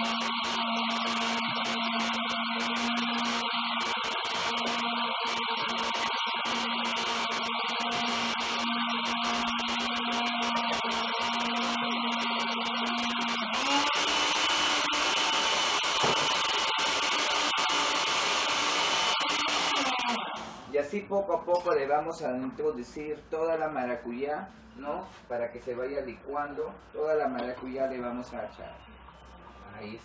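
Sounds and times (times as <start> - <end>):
blender running: 0.0 - 20.7.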